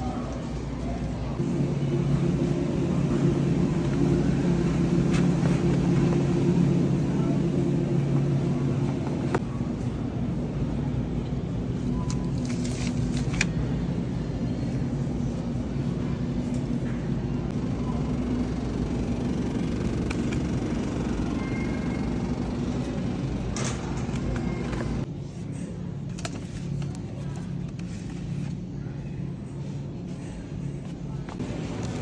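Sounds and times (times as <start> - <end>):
low hum and rumble: 0.0 - 32.0.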